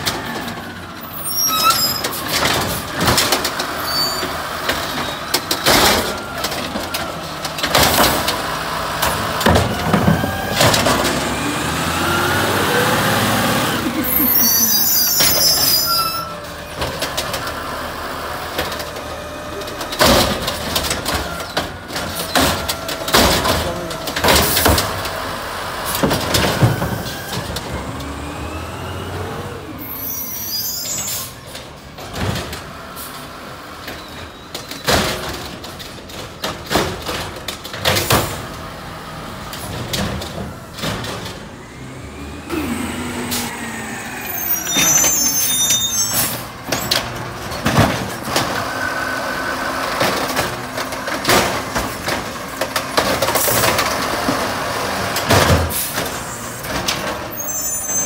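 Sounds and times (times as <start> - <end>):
garbage truck engine: 0.0 - 58.0
trash carts banging: 0.0 - 58.0
air brakes squealing and hissing: 1.0 - 2.4, 14.0 - 16.6, 28.5 - 31.7, 41.6 - 47.1, 55.6 - 58.0.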